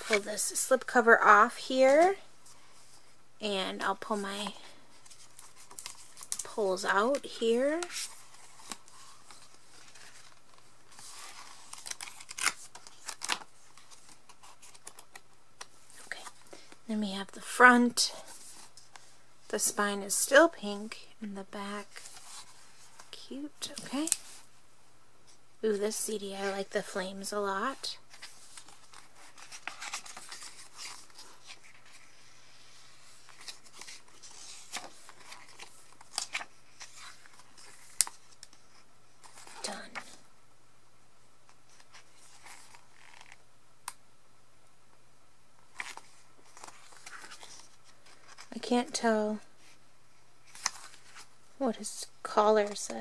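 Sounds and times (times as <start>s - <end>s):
cardboard packaging rustling: 7.2s - 15.2s, 28.0s - 32.1s, 32.9s - 38.6s, 45.7s - 48.6s.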